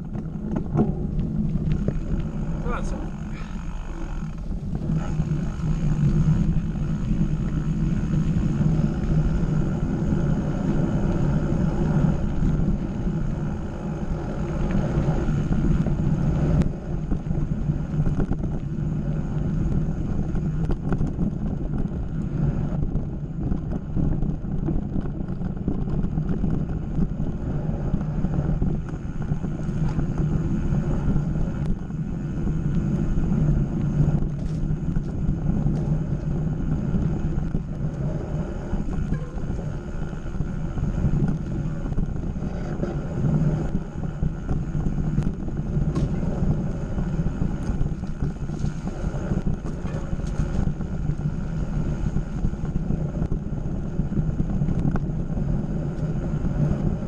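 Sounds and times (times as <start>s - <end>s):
light knocks from trail bumps: 0.0s - 2.7s, 14.3s - 57.0s
bike tyre rumble and rattle: 0.0s - 57.0s
wind on microphone: 0.0s - 57.0s.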